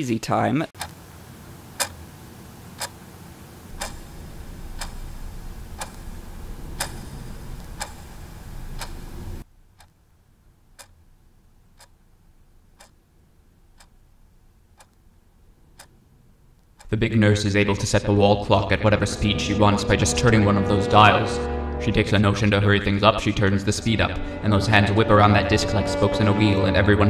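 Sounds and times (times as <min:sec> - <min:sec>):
low steady hum: 0:00.8 - 0:27.0
clock ticking: 0:01.8 - 0:02.0, 0:02.8 - 0:03.0, 0:03.7 - 0:10.0, 0:10.7 - 0:17.0.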